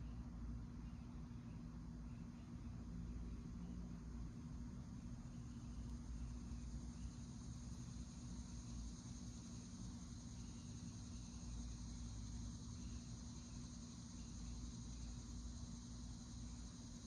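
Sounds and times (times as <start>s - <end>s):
insect chorus: 0.0s - 17.0s
low steady hum: 0.0s - 17.0s.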